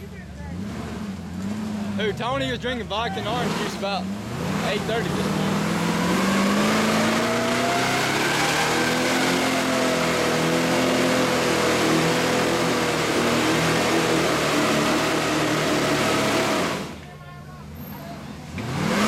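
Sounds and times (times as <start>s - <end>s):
engine at high revs under load: 0.0s - 17.0s, 17.8s - 19.0s.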